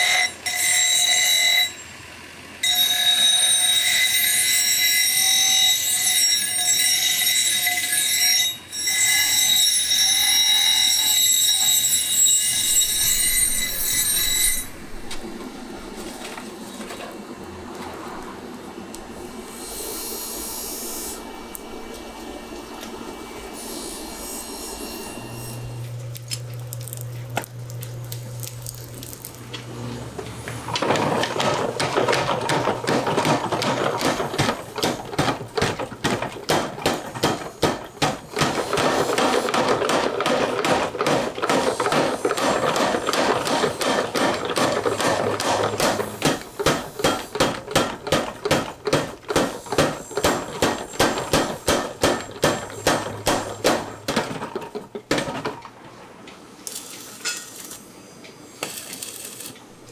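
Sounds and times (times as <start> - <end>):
steady machine hum: 11.4 - 56.7
power hammer pounding steel: 30.6 - 55.6.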